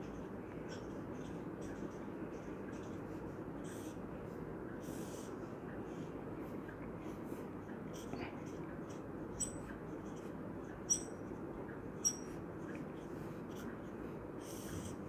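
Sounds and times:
low room hum: 0.0 - 15.0
marker squeaking on whiteboard: 0.1 - 3.0, 8.9 - 11.2, 12.0 - 12.4.

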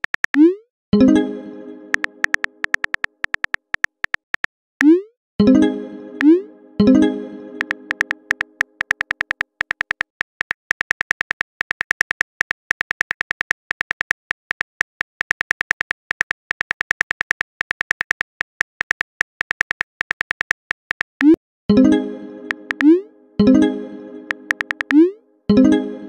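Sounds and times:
keyboard typing clicks: 1.8 - 5.0, 6.2 - 21.4, 22.4 - 23.5, 24.2 - 25.1.

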